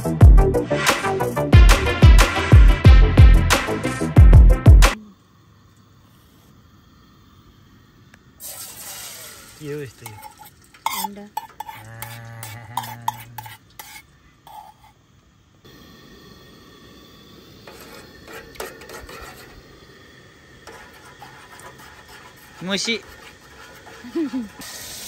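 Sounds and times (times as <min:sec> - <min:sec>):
food sizzling: 0:08.2 - 0:25.0
metal utensils scraping a pan: 0:09.4 - 0:15.0, 0:17.7 - 0:19.6, 0:20.6 - 0:24.6.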